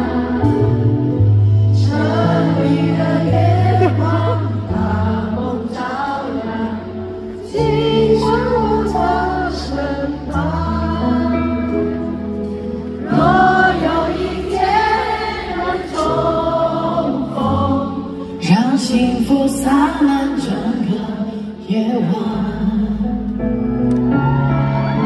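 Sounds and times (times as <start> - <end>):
audience singing along: 0.0 - 19.0
many voices singing: 0.0 - 21.3.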